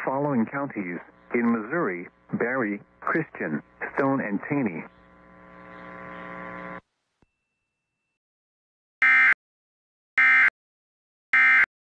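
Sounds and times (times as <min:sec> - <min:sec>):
buzzing hum: 0:00.1 - 0:06.9.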